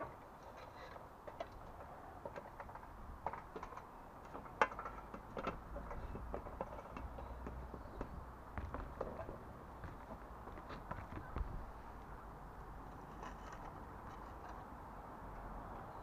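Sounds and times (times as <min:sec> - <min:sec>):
clicks and knocks on ladder: 0:00.0 - 0:09.4
wind rumble on microphone: 0:05.4 - 0:12.9.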